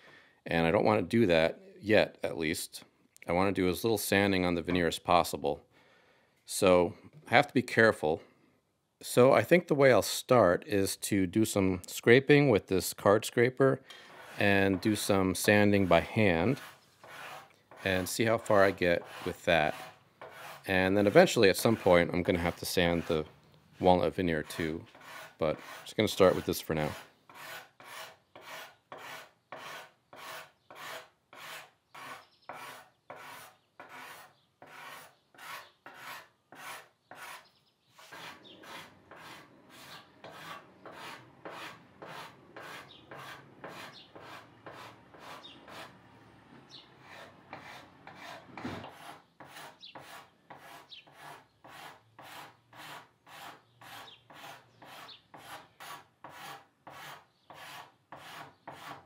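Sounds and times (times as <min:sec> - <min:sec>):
sanding wood by hand: 0:14.1 - 0:46.0, 0:47.0 - 0:59.0.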